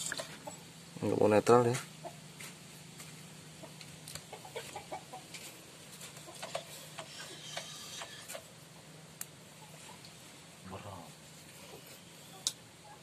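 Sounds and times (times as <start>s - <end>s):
chickens clucking: 0.0s - 0.9s, 1.7s - 10.3s.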